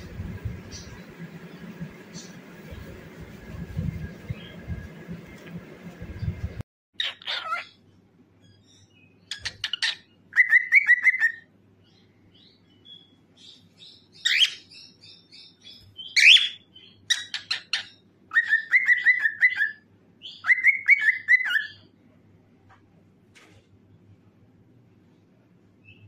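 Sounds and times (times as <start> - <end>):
cockatiel chattering and whistling: 7.0 - 7.7, 9.3 - 11.4, 16.1 - 21.8
cockatiel sharp calls: 7.0 - 7.7, 9.3 - 11.4, 16.2 - 21.8.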